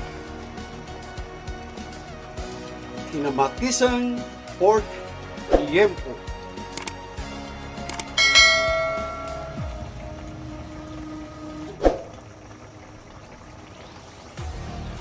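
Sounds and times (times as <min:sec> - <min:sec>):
quick clicks: 0:06.7 - 0:07.0, 0:07.8 - 0:08.2
bright bell chime: 0:08.2 - 0:09.7.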